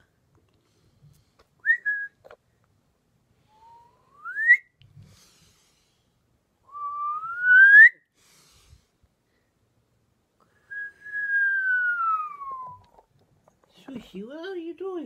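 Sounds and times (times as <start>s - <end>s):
person whistling rising notes: 3.5s - 4.7s, 6.7s - 8.0s, 10.7s - 13.0s.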